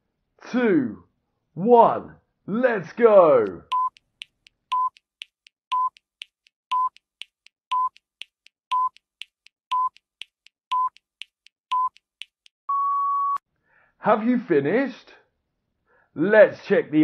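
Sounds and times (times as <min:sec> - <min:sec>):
quick ticks: 0:03.4 - 0:12.6
short electronic beeps: 0:07.7 - 0:08.0, 0:08.7 - 0:09.0, 0:10.7 - 0:11.0.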